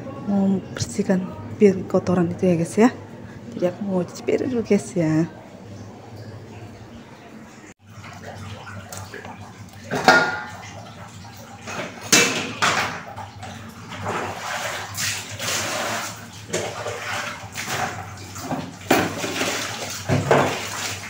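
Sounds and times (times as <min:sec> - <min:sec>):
water pouring and splashing: 0:07.8 - 0:21.0.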